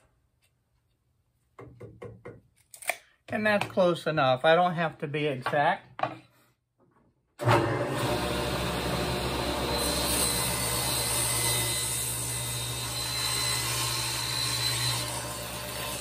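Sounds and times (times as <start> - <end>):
table saw cutting wood: 7.4 - 16.0.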